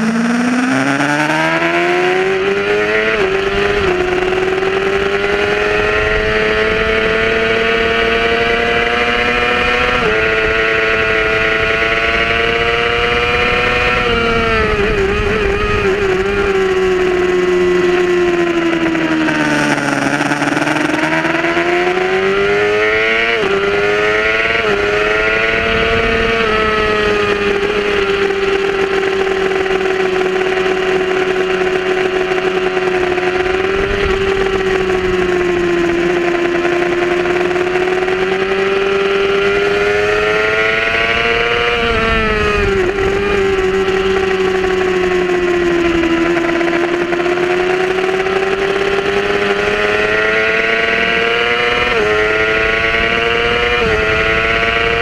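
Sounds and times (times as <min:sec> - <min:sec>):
motorcycle engine revving: 0:00.0 - 0:55.0
wind rushing over microphone: 0:00.0 - 0:55.0.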